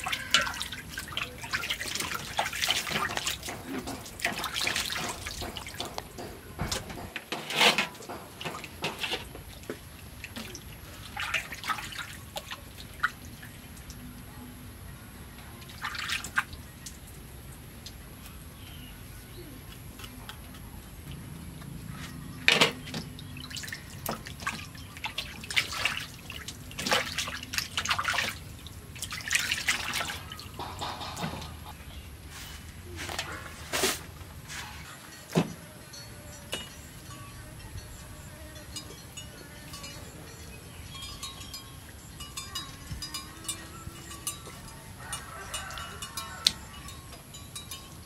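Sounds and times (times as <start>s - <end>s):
water splashing in metal basin: 0.0s - 14.1s, 15.6s - 18.0s, 22.5s - 31.8s.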